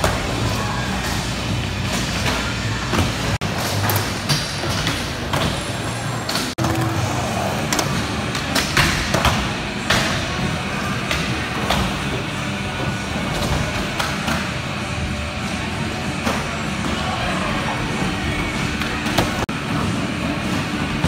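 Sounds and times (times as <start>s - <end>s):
skateboard wheels rumbling: 5.0s - 8.4s.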